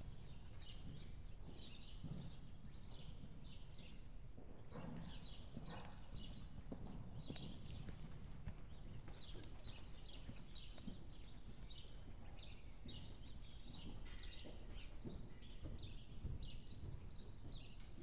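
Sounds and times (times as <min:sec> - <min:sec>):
hoofbeats on soft dirt: 0:00.0 - 0:18.0.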